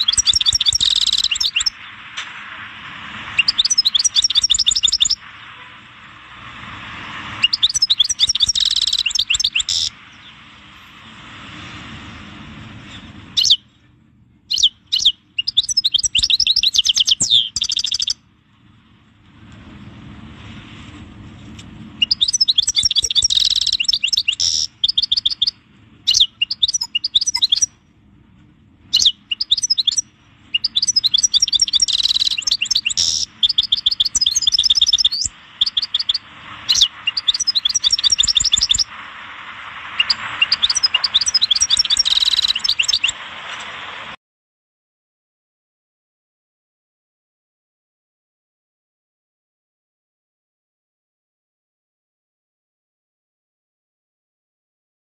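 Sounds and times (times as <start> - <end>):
goldfinch twittering trills: 0.0 - 1.7, 3.4 - 5.2, 7.4 - 9.9, 14.5 - 18.2, 22.0 - 27.7, 28.9 - 38.8, 40.0 - 43.2
faint background noise: 0.0 - 44.2.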